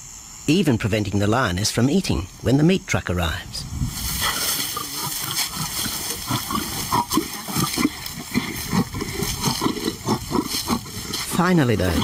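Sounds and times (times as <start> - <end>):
lion growling: 4.1 - 12.0.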